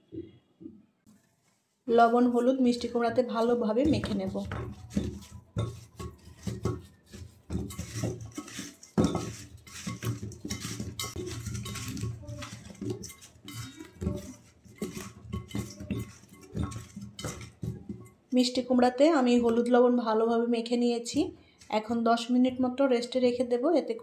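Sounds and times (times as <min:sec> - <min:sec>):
food clattering in metal bowl: 0:02.7 - 0:19.7.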